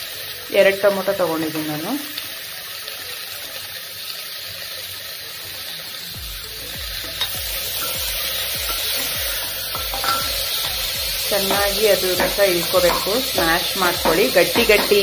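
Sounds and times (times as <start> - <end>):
vegetables sizzling in oil: 0.0 - 15.0
steel spatula stirring: 6.6 - 15.0.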